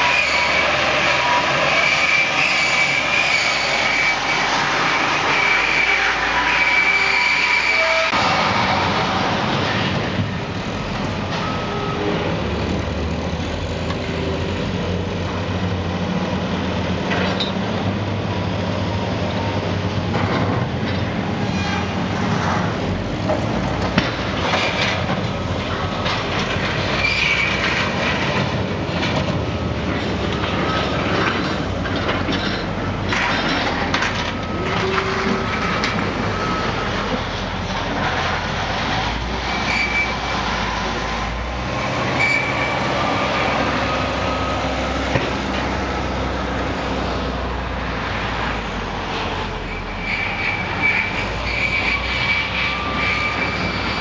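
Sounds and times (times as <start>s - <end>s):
diesel engines running: 0.0s - 54.0s
brief squeals: 5.3s - 8.2s, 39.6s - 40.3s, 42.2s - 42.8s, 49.8s - 54.0s
clanks and crunches of debris: 23.3s - 36.2s.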